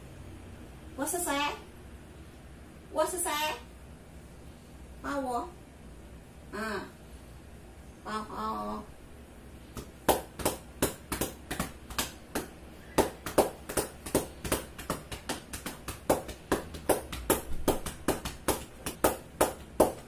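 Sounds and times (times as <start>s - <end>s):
hand slapping a back: 9.7s - 20.0s.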